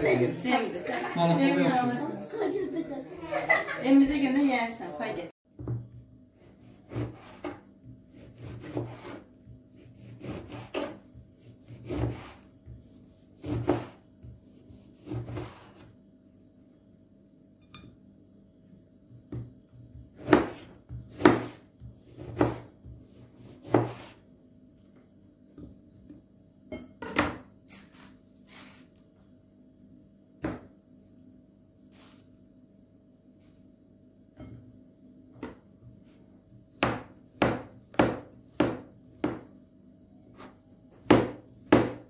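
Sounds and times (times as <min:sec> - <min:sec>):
knife sawing through fruit: 0:06.4 - 0:14.0.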